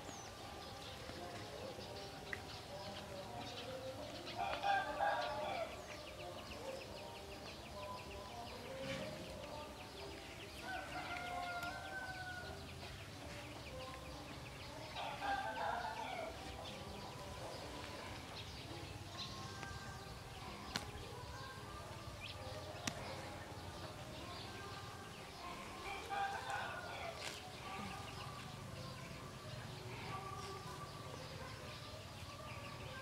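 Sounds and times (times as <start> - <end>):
roosters crowing: 4.2 - 6.2, 10.4 - 12.9, 14.8 - 16.7, 25.1 - 29.0.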